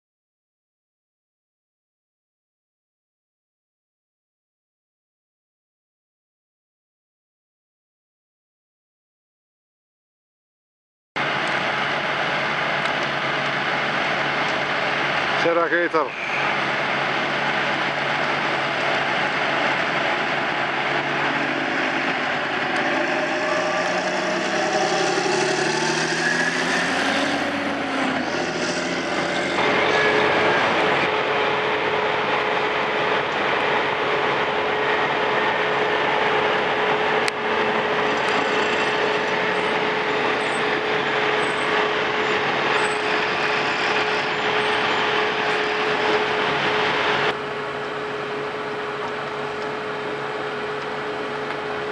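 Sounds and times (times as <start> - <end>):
heavy diesel engine driving by: 11.2 - 51.9
machine drone with whining tone: 11.2 - 51.9.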